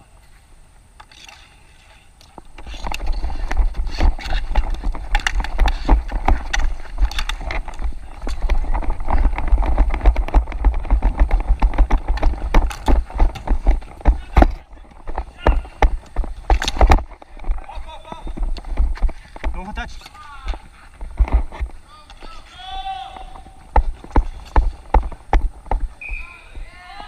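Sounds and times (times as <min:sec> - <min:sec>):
footfalls on plastic tiles: 0:02.3 - 0:26.7
wind rumble on microphone: 0:02.7 - 0:19.6.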